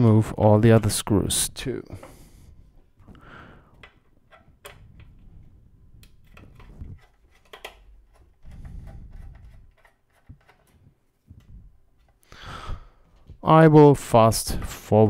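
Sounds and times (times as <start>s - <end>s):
screwdriver clicks and scrapes: 6.0s - 10.9s.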